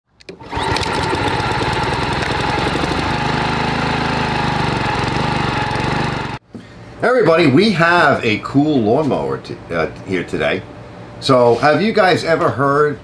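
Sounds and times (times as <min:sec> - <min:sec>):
lawn mower engine running: 0:00.2 - 0:06.4.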